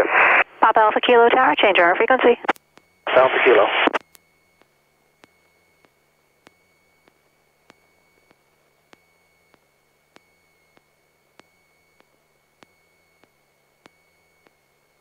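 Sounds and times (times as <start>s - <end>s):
faint radio hiss: 0.0s - 4.6s
steady high whine: 0.0s - 15.0s.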